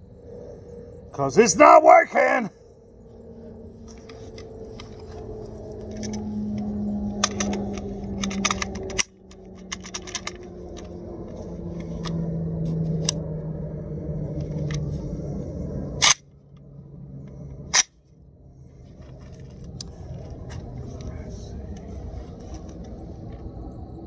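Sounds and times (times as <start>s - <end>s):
low engine drone: 0.0s - 24.0s
rifle metallic clicks: 4.0s - 11.0s, 16.0s - 16.2s, 17.7s - 17.9s.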